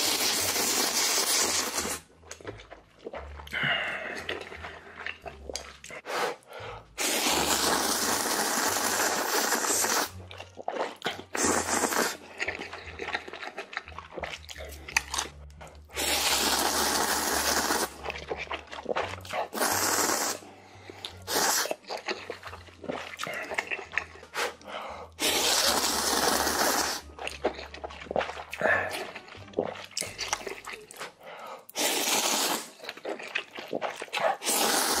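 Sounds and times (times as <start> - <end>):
person slurping noodles: 0.0 - 2.0, 3.2 - 15.3, 15.9 - 35.0
wet chewing and smacking: 1.7 - 6.1, 10.1 - 16.0, 16.7 - 19.9, 20.6 - 34.9.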